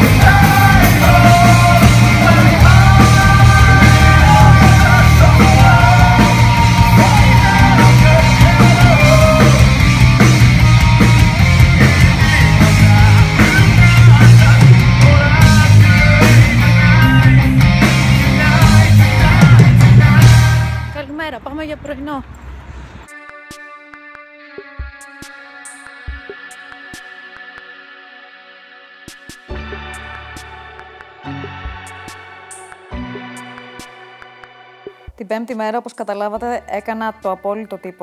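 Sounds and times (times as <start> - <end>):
live rock band with singer: 0.0 - 21.0.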